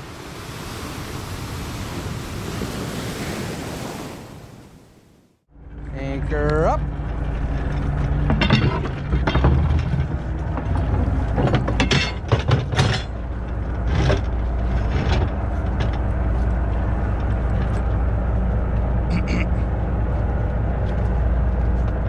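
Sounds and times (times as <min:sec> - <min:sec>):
boat engine running: 0:05.5 - 0:22.0
metal gear clattering on rail: 0:06.8 - 0:16.1.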